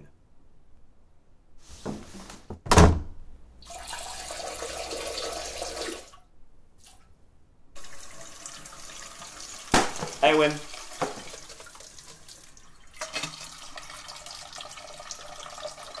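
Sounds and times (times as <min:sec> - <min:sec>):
dishes being washed: 0:07.8 - 0:16.0
tap running into sink: 0:10.9 - 0:11.7.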